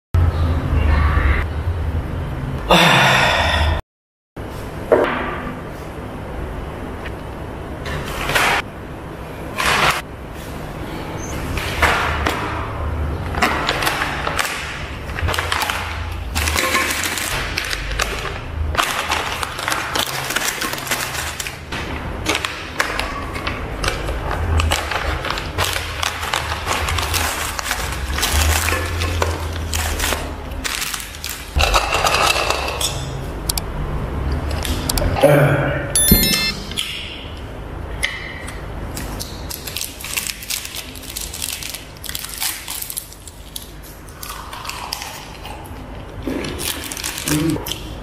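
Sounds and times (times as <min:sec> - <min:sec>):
plastic wrappers crinkling and clattering: 0:13.4 - 0:32.5, 0:39.0 - 0:45.3, 0:46.1 - 0:48.0
plastic pouches rustling: 0:39.5 - 0:43.8, 0:46.5 - 0:47.5.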